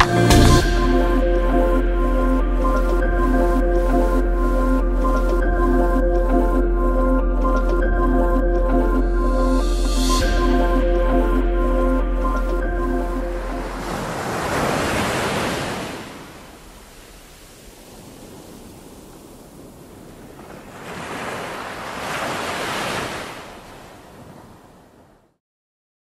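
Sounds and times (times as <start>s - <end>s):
ocean waves washing in: 8.8s - 25.4s.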